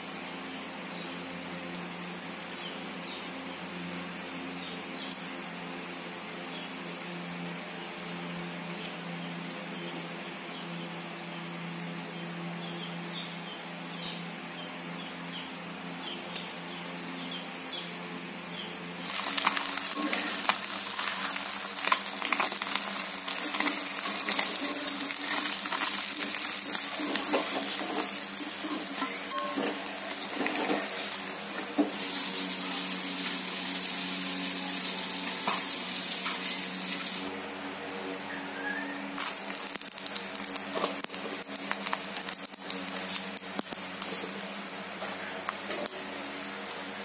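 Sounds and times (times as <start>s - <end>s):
fish sizzling in hot oil: 19.0s - 37.3s, 39.2s - 45.0s.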